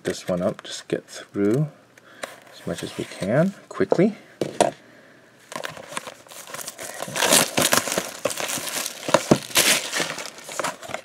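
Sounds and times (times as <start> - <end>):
plastic shrink wrap tearing: 5.6 - 11.0.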